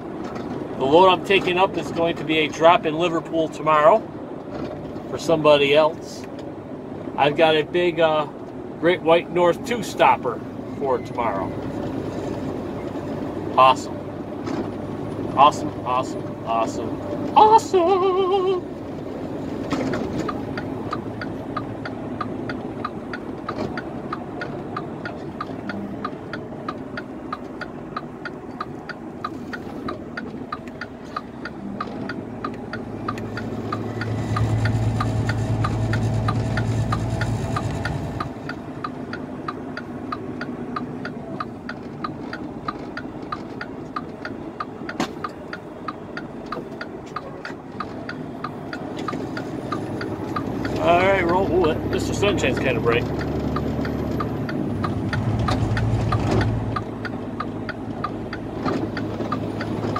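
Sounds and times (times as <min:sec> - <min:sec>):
truck engine and road drone: 0:00.0 - 0:59.9
fast even ticking: 0:19.9 - 0:59.9.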